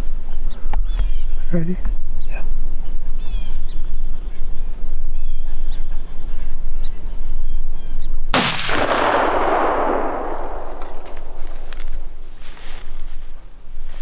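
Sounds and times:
gunshot with long echo: 0:08.4 - 0:12.2.

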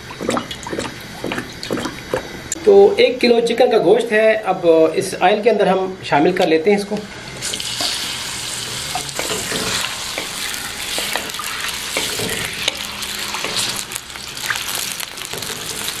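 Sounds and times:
oil sizzling gently: 0:07.0 - 0:16.0
spatula scraping pan: 0:08.8 - 0:13.8.

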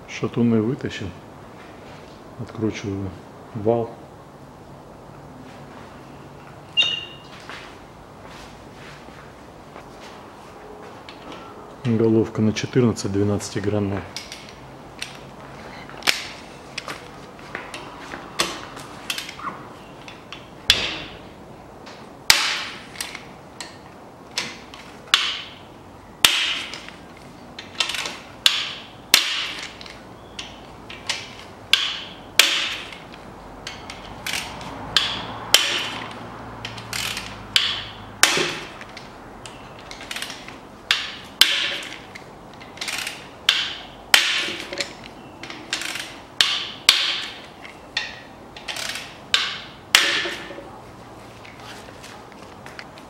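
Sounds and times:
ratchet wrench clicking: 0:33.7 - 0:42.0, 0:42.6 - 0:47.4, 0:48.0 - 0:50.1.

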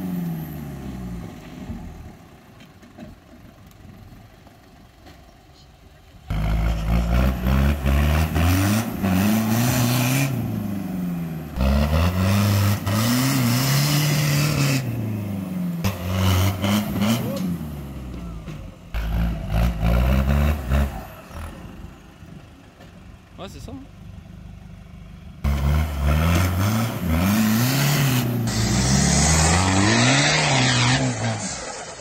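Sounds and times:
off-road vehicle engine revving: 0:06.2 - 0:22.2, 0:25.4 - 0:32.0.

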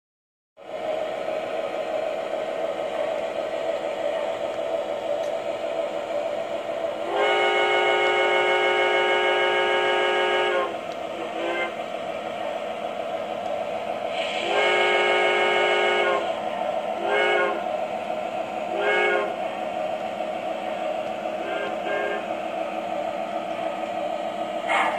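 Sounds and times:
model train rolling on track: 0:00.6 - 0:24.9
model locomotive horn blasts: 0:07.0 - 0:11.8, 0:14.1 - 0:16.4, 0:17.0 - 0:17.7, 0:18.7 - 0:19.4, 0:21.4 - 0:22.4.

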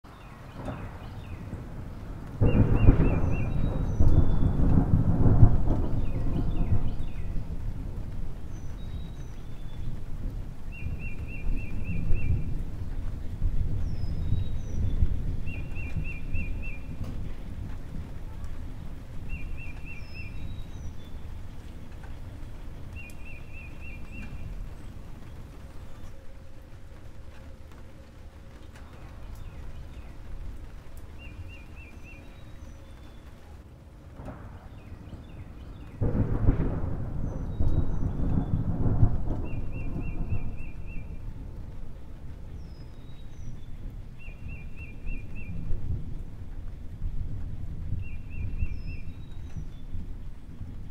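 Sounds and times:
thunder rumbling: 0:00.1 - 0:50.9
bird singing rising notes: 0:22.9 - 0:26.3.

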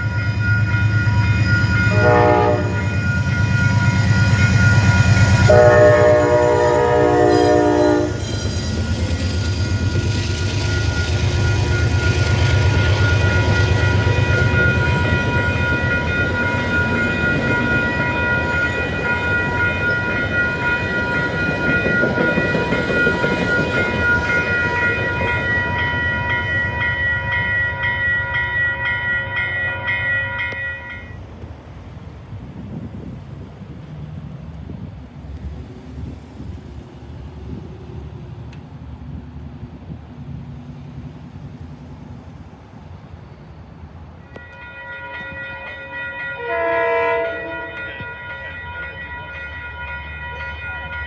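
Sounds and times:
crossing warning bell ringing: 0:00.0 - 0:32.0, 0:44.1 - 0:51.0
train wheels rumbling on rails: 0:00.0 - 0:51.0
locomotive horn: 0:01.6 - 0:04.0, 0:04.9 - 0:08.5, 0:46.4 - 0:48.1.

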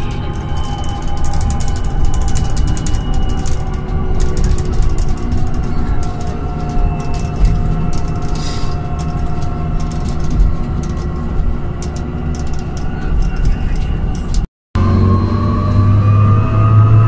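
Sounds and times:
light rattling clicks: 0:00.0 - 0:14.4
bus low rumble: 0:00.0 - 0:17.0
motor whine: 0:00.0 - 0:17.0
short hiss: 0:08.4 - 0:08.8.

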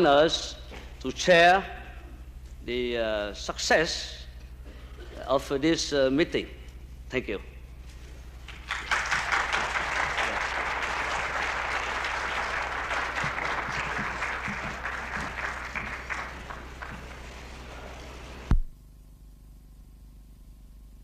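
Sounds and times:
low hum: 0:06.5 - 0:18.8
audience applauding: 0:08.4 - 0:18.5.

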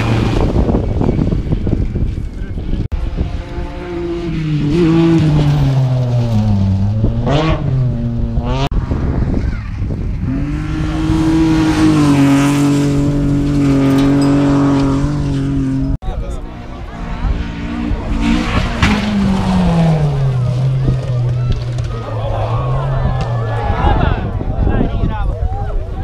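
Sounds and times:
rally car engine accelerating: 0:00.0 - 0:09.2, 0:10.1 - 0:24.4
rally car engine high pitch: 0:10.3 - 0:24.1.

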